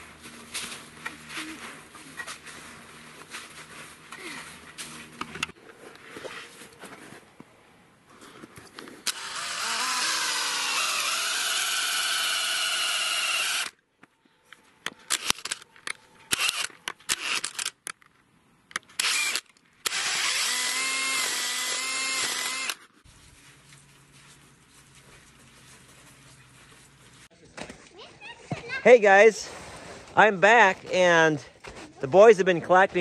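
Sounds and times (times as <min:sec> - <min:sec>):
cordless drill boring into wood: 0:09.0 - 0:13.8, 0:16.3 - 0:17.6, 0:19.0 - 0:22.8.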